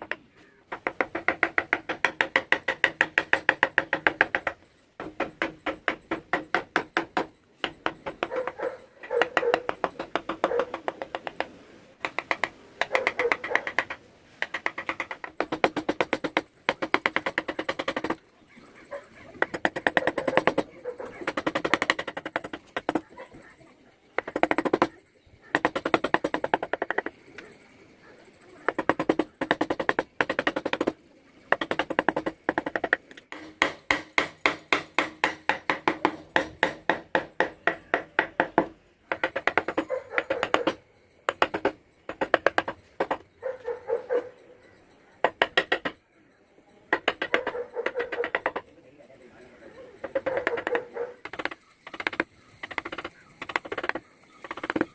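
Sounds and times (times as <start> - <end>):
chisel tapped into wood: 0.0 - 18.2, 19.3 - 23.1, 24.2 - 27.1, 28.7 - 43.2, 45.2 - 46.0, 46.9 - 48.7, 50.0 - 54.9.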